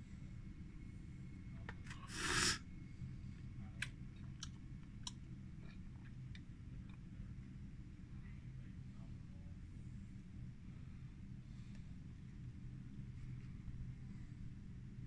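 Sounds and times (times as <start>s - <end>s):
faint low hum: 0.0s - 15.0s
short hissing rush: 1.9s - 2.6s.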